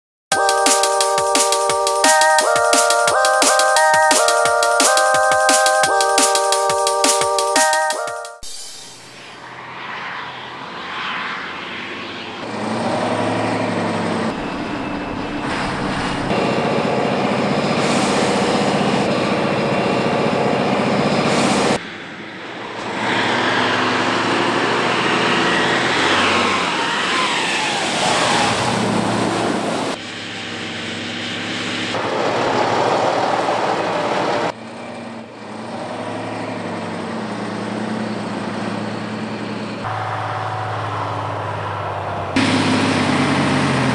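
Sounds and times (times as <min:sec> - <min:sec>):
armoured vehicle engine revving: 0:10.2 - 0:43.9.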